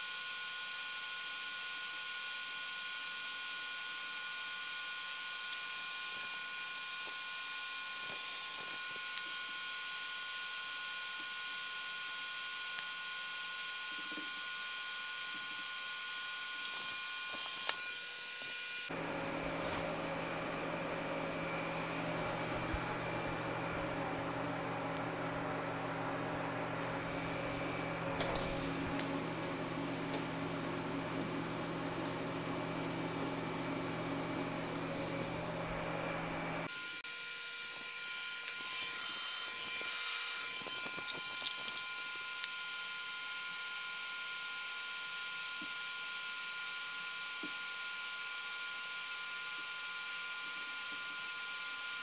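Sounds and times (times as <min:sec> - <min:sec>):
welding whine: 0:00.0 - 0:52.0
welding arc hiss: 0:05.3 - 0:18.9.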